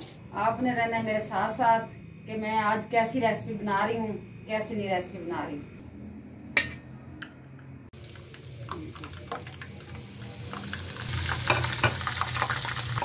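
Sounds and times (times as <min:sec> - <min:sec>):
food sizzling in hot oil: 0:08.0 - 0:13.0.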